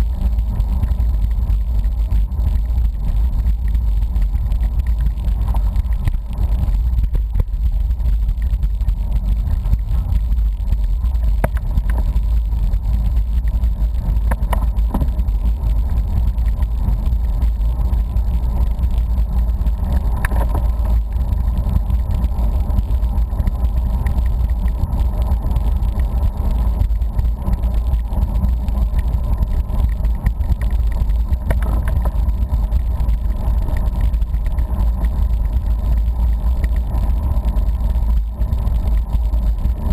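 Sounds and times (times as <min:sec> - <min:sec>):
faint ticks: 0:00.0 - 0:39.9.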